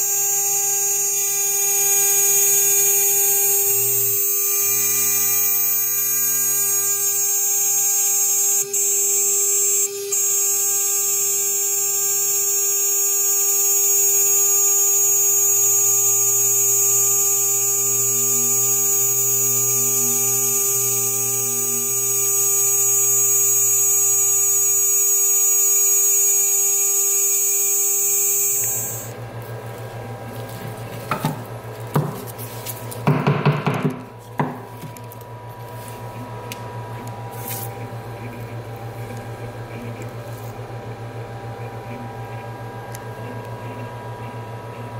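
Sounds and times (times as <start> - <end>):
router spindle motor whine: 0.0 - 29.2
knocks: 33.0 - 34.6.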